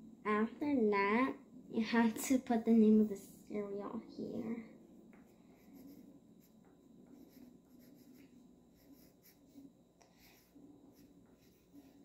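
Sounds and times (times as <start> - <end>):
drawing tool scratching on paper: 5.5 - 12.0.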